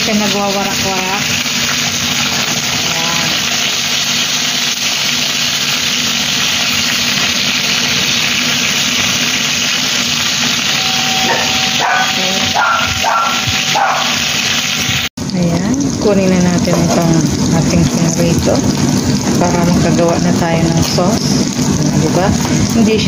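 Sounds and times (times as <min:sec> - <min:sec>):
fish sizzling in oil: 0:00.0 - 0:23.0
low steady hum: 0:10.6 - 0:14.1.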